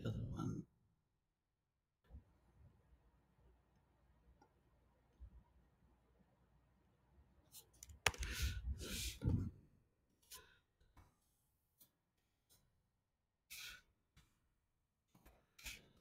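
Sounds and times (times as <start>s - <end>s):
keyboard and mouse clicks: 7.8s - 8.4s.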